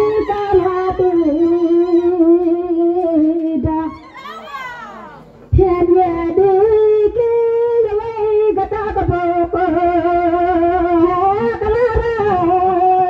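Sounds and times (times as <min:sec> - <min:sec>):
woman singing into microphone: 0:00.0 - 0:04.4, 0:05.5 - 0:13.0.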